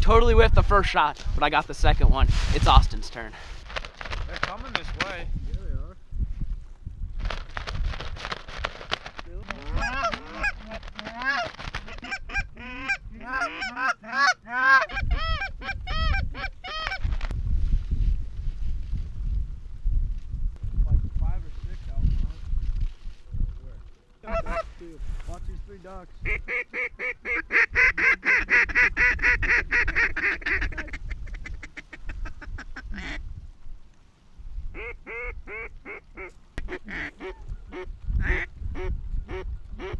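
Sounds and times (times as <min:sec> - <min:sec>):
duck call quacking: 0:09.6 - 0:17.0, 0:26.3 - 0:33.2, 0:34.8 - 0:39.9
goose honking: 0:09.6 - 0:17.0, 0:34.8 - 0:39.9.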